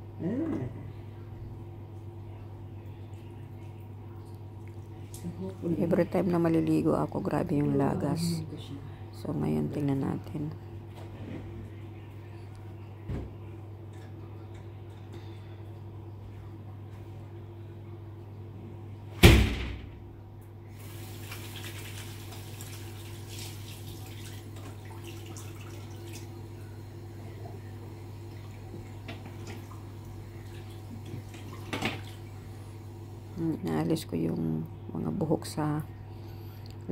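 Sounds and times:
steady low hum: 0.0s - 21.0s, 23.8s - 36.9s
faint hiss of water: 20.7s - 24.3s.

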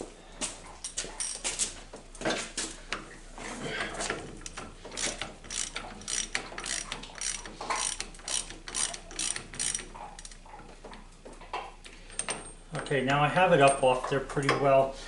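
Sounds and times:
ratchet wrench clicking: 4.9s - 10.4s.

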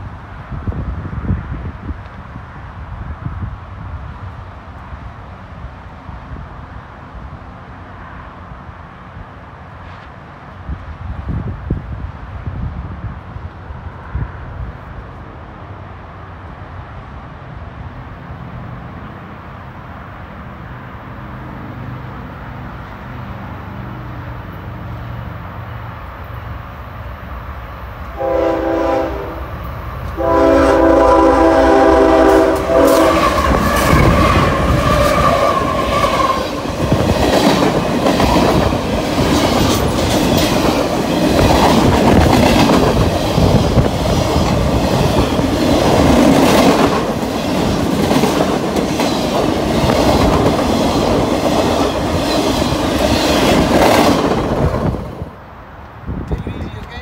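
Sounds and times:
freight train rumbling past: 0.0s - 57.0s
locomotive horn blasts: 28.2s - 29.6s, 30.2s - 34.0s.

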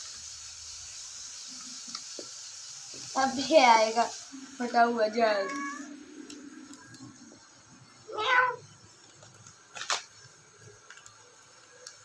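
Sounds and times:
cat meowing: 5.3s - 5.9s, 8.1s - 8.7s.

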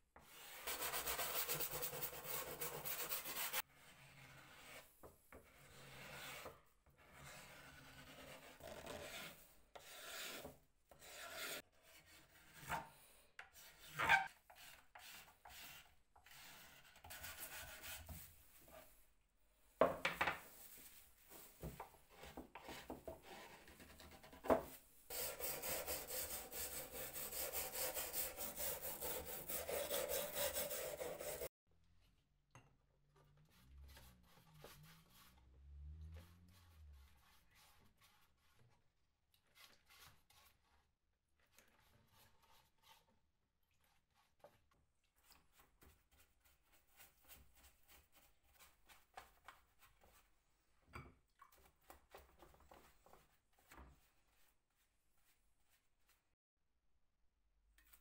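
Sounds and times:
hand rubbing wood: 25.1s - 31.5s.

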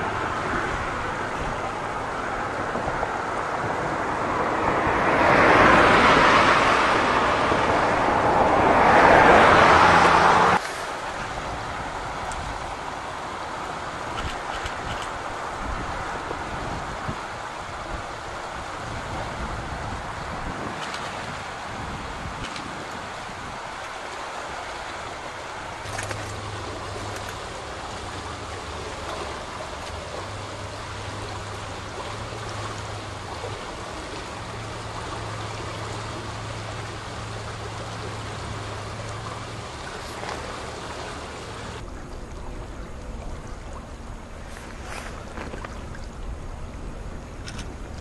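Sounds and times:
low rumble of wind and water: 0.0s - 48.0s
river water rushing: 0.0s - 48.0s
low steady hum: 24.8s - 48.0s.

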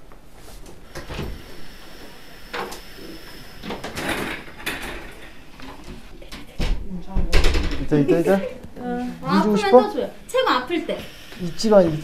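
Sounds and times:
rustling and knocking: 3.8s - 8.0s.

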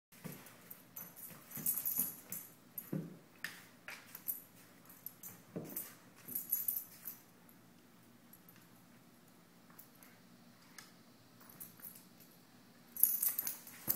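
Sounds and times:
dog collar tags jingling: 0.7s - 3.0s, 4.2s - 7.3s, 13.0s - 13.9s.

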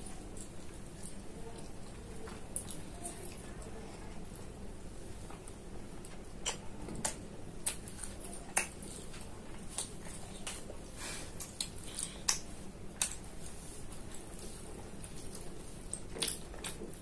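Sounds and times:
low background hum: 0.0s - 17.0s
wet lip smacks and chewing clicks: 6.0s - 10.7s, 11.4s - 13.3s.

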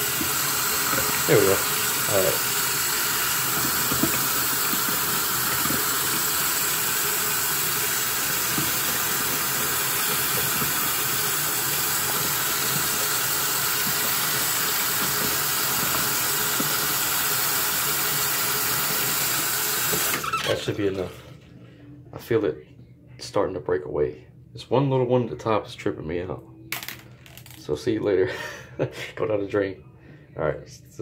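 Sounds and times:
tap water splashing into basin: 0.0s - 17.1s.

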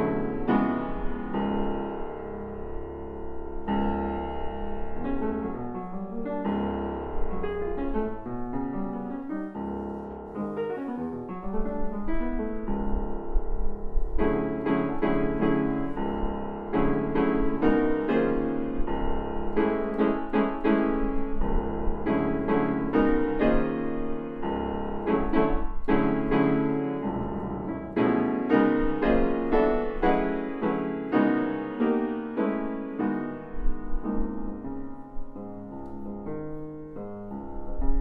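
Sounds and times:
classical piano playing: 0.0s - 38.0s.

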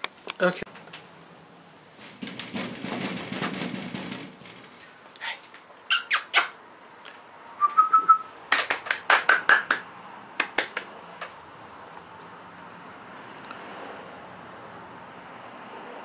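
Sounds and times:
mouth kissing clicks: 5.9s - 6.6s
person whistling: 7.6s - 8.3s.

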